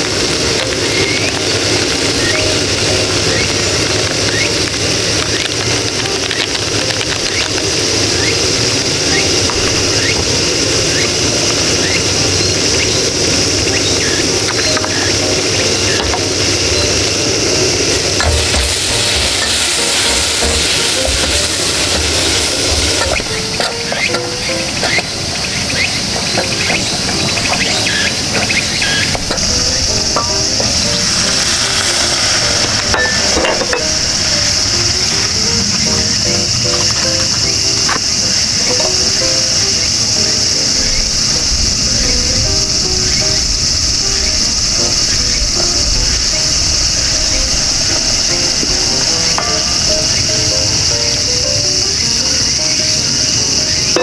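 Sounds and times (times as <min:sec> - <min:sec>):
curry sizzling in pot: 0:00.0 - 0:41.4
gas stove burner hissing: 0:00.0 - 0:54.0
soft melodic music: 0:00.0 - 0:54.0
water poured into hot pot: 0:18.2 - 0:23.4, 0:29.3 - 0:35.3
short rising chirps: 0:26.9 - 0:37.8.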